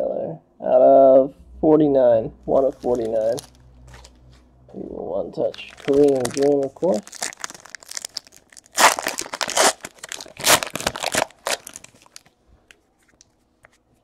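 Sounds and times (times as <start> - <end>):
foil wrapper ripping and crinkling: 2.6 - 4.2, 5.4 - 12.3.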